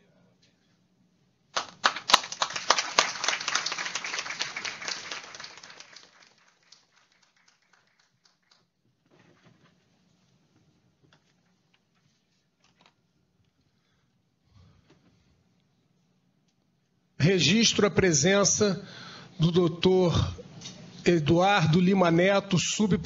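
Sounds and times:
small audience applauding: 0:01.5 - 0:08.9.

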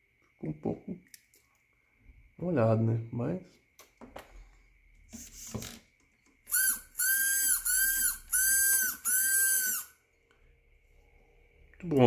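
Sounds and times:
rc car electric motor whining: 0:06.5 - 0:10.0.

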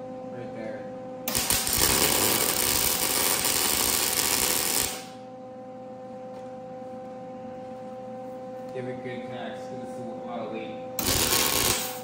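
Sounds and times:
welding arc crackling sizzle: 0:01.3 - 0:05.2, 0:11.0 - 0:12.0.

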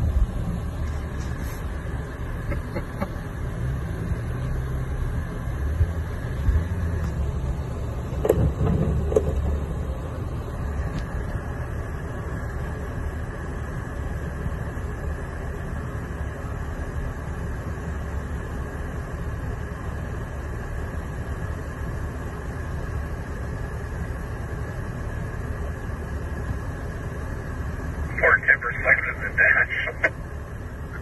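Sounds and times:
off-road vehicle engine running: 0:00.0 - 0:31.0.

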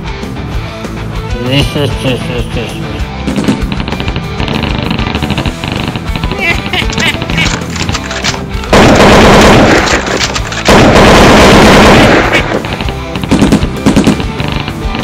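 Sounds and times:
background music: 0:00.0 - 0:15.0
automatic gunfire: 0:03.3 - 0:15.0
single gunshots: 0:08.7 - 0:14.7.

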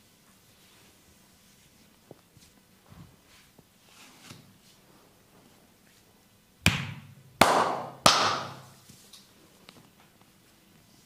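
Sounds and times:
hands slapping bare skin: 0:06.7 - 0:08.7.

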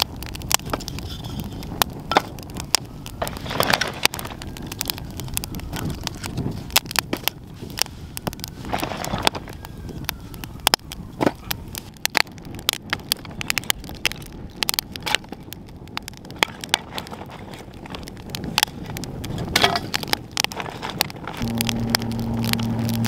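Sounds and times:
wood fire crackling: 0:00.0 - 0:23.0
low rumble: 0:21.1 - 0:23.0.

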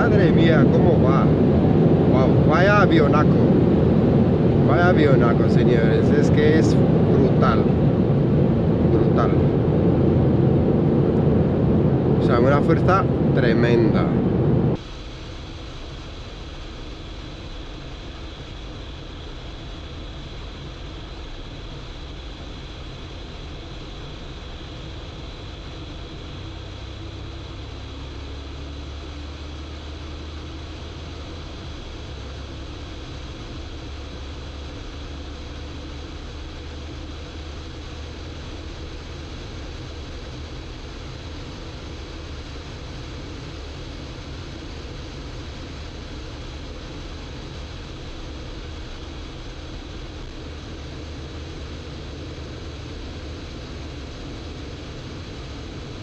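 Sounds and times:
car engine rumble: 0:00.0 - 0:56.0
wind and road noise: 0:00.0 - 0:56.0.

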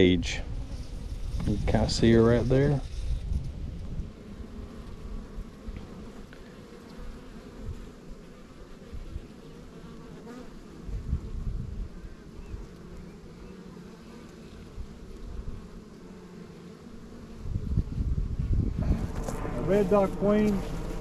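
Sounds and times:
bees buzzing: 0:00.0 - 0:21.0
low rumbles on microphone: 0:17.4 - 0:21.0.

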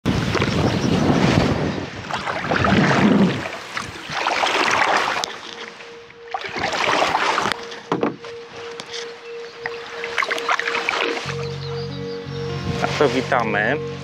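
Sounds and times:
gusty wind on microphone: 0:00.0 - 0:05.2
steady held tone: 0:04.6 - 0:14.0.

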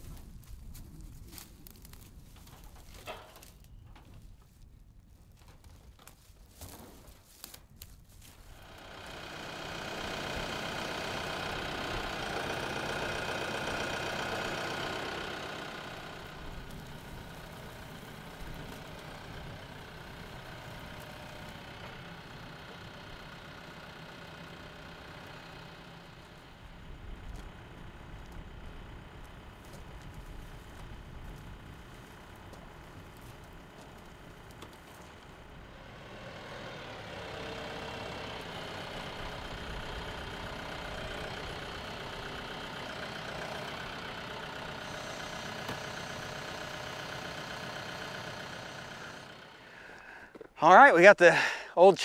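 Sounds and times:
tractor diesel engine running: 0:00.0 - 0:52.0.

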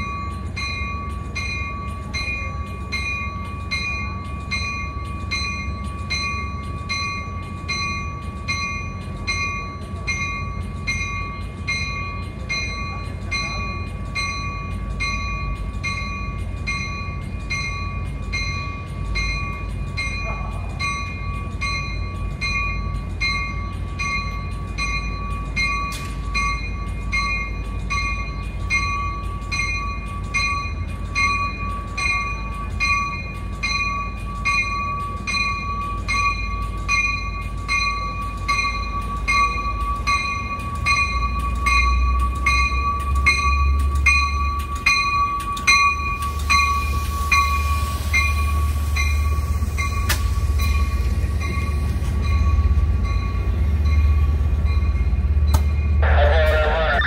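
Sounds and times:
train low rumble: 0:00.0 - 0:57.0
warning bell ringing: 0:50.6 - 0:57.0.

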